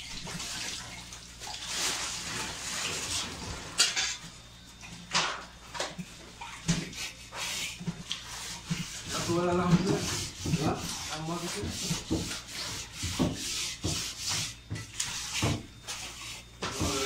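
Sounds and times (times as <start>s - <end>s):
foil trays rustling and scraping: 1.4s - 4.2s, 7.2s - 17.0s.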